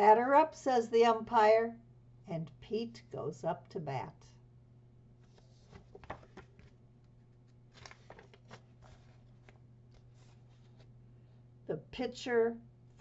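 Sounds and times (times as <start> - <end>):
steady low hum: 0.0 - 13.0
paper pages rustling: 5.2 - 11.0.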